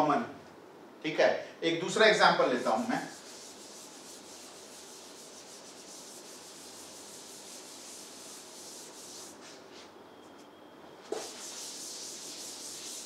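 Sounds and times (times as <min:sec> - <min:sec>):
eraser wiping whiteboard: 0:02.6 - 0:09.9, 0:11.1 - 0:13.0.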